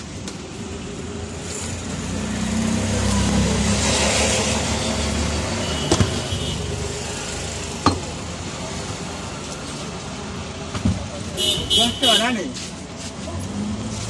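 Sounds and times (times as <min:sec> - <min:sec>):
vehicle engine passing: 0:01.2 - 0:05.6.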